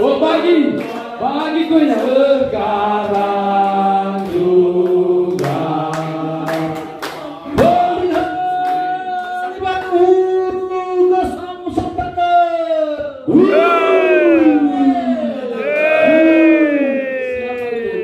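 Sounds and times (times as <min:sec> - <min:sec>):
group singing together: 0:00.0 - 0:10.2.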